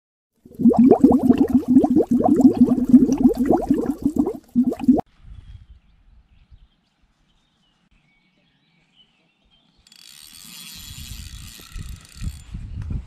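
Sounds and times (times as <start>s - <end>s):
wind rumble on microphone: 10.9s - 13.0s.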